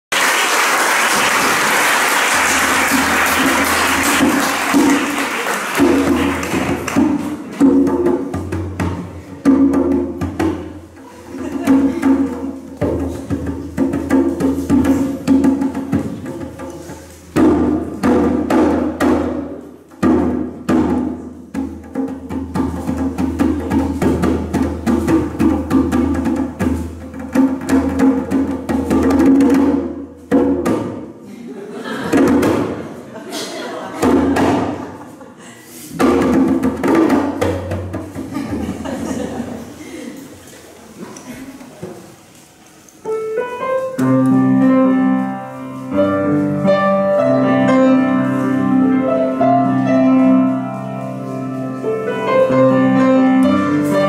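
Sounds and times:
drum: 0:02.3 - 0:31.1, 0:32.1 - 0:32.8, 0:34.0 - 0:35.0, 0:35.9 - 0:39.2.

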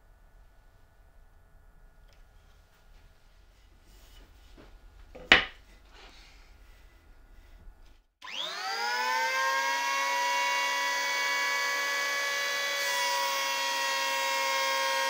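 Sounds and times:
electric planer motor whining: 0:08.2 - 0:15.0.

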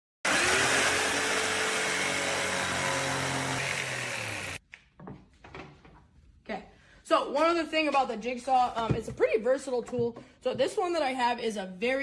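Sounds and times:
jigsaw cutting wood: 0:00.2 - 0:04.6.

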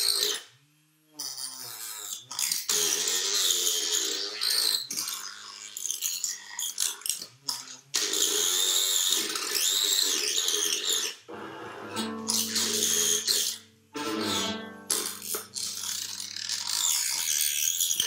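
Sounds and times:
wavering rasp: 0:01.4 - 0:18.0
low drone of held pitches: 0:11.3 - 0:17.2.

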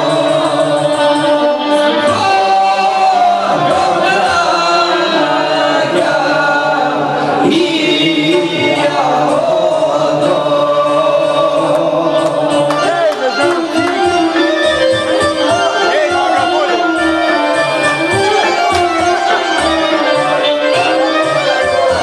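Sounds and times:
folk music with group singing: 0:00.0 - 0:22.0.

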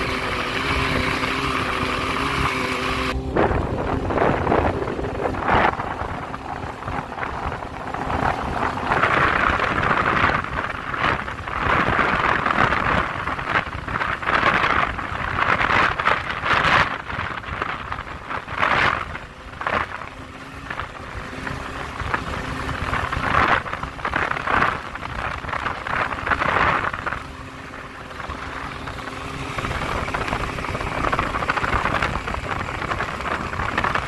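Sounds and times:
outboard motor running: 0:00.0 - 0:34.0
wind noise: 0:00.0 - 0:34.0.

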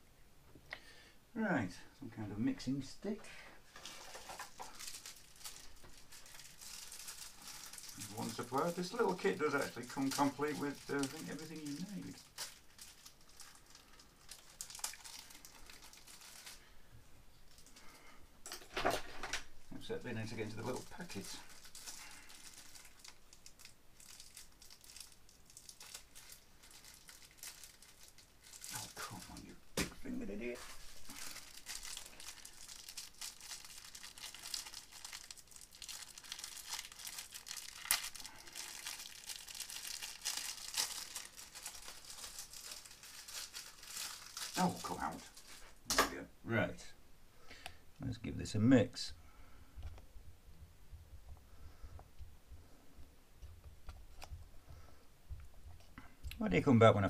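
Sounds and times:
plastic packet crinkling: 0:03.7 - 0:16.8, 0:17.4 - 0:45.8.

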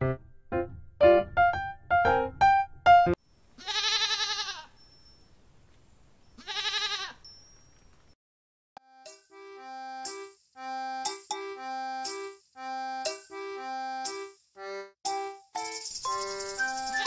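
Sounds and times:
light keyboard music: 0:00.0 - 0:03.2, 0:08.8 - 0:17.0
sheep and goats bleating: 0:03.6 - 0:04.7, 0:06.4 - 0:07.2.

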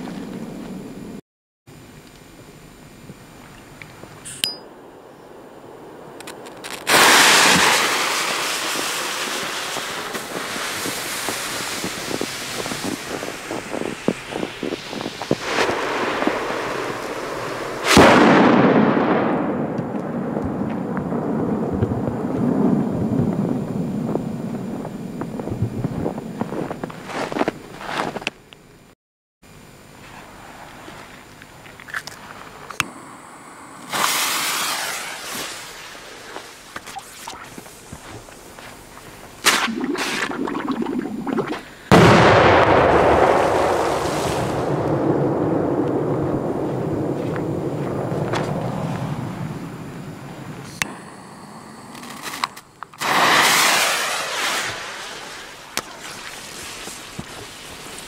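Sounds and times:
firecracker fuse hissing: 0:06.4 - 0:18.2, 0:32.8 - 0:41.0, 0:48.4 - 0:58.0
firecracker bang: 0:06.6 - 0:26.2, 0:33.9 - 0:35.9, 0:41.9 - 0:49.6, 0:52.1 - 0:55.0.

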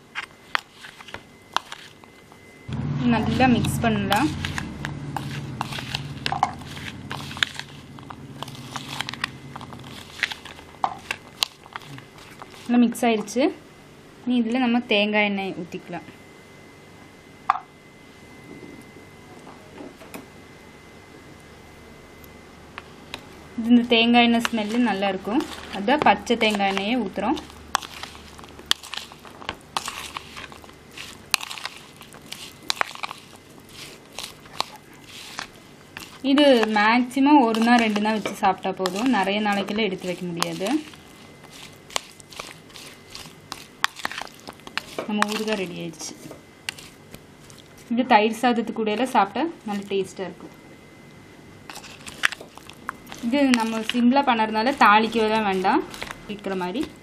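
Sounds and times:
spoon scraping plastic bowl: 0:00.0 - 0:02.2, 0:03.0 - 0:13.3, 0:24.2 - 0:47.9, 0:51.7 - 0:57.0
wet squelching and crunching: 0:00.1 - 0:02.2, 0:03.2 - 0:12.8, 0:24.3 - 0:46.0, 0:46.6 - 0:47.9, 0:51.7 - 0:57.0.

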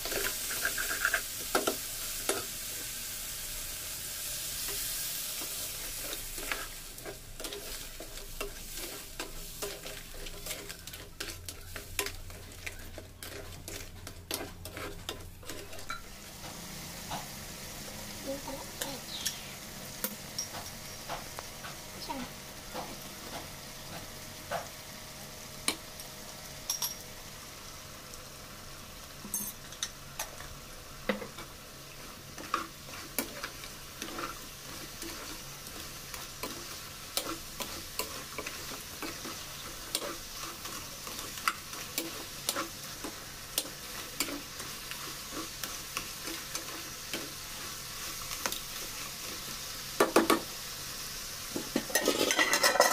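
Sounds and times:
curry sizzling in a pan: 0:00.0 - 0:52.9
ladle scraping a pan: 0:05.9 - 0:16.0, 0:51.8 - 0:52.9.

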